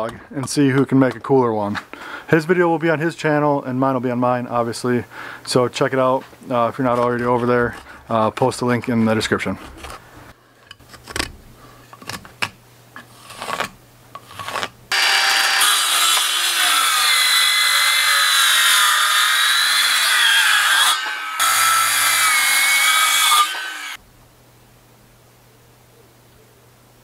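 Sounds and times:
circular saw cutting log: 14.3 - 24.0.

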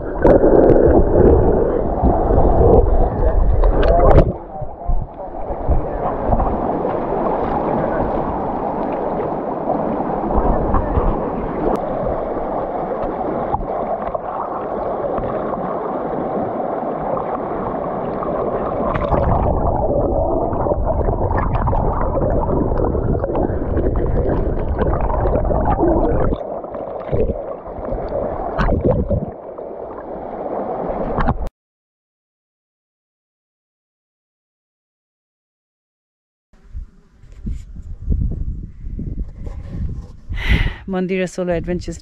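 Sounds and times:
river water rushing over rocks: 5.4 - 22.5.

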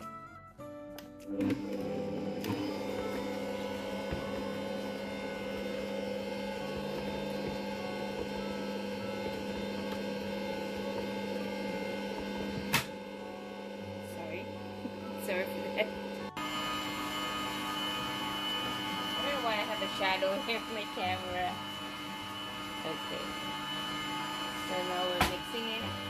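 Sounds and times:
stand mixer motor hum: 1.3 - 26.0.

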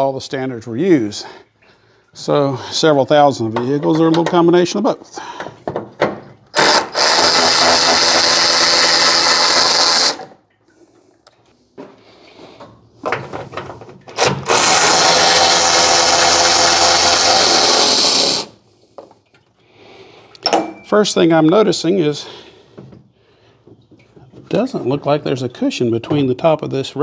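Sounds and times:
electric ratchet running: 6.6 - 10.3, 14.2 - 18.6.

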